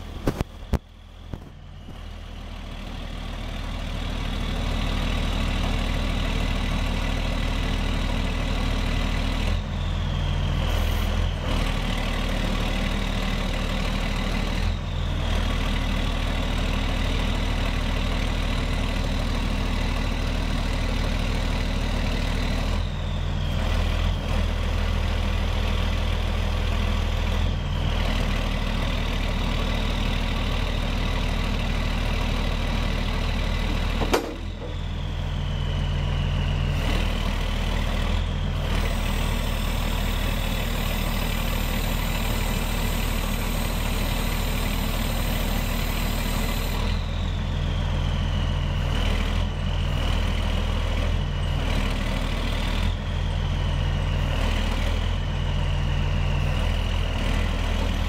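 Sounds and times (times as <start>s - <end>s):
hydraulic whine: 0.0s - 2.6s, 32.6s - 51.7s
diesel engine idling: 0.0s - 58.0s.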